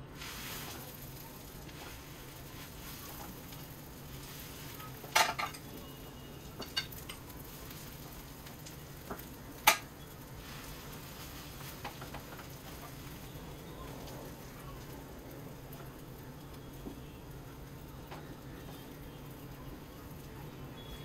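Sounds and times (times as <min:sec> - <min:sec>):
potatoes sizzling in oil: 0:00.0 - 0:21.0
spatula clinking on griddle: 0:04.6 - 0:05.8, 0:06.6 - 0:07.8.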